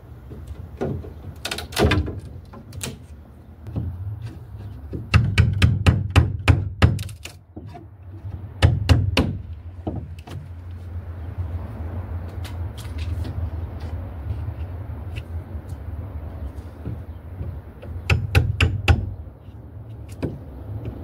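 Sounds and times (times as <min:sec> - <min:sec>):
hammer knocking on wood: 0:03.7 - 0:07.0, 0:08.3 - 0:10.4, 0:16.8 - 0:19.1.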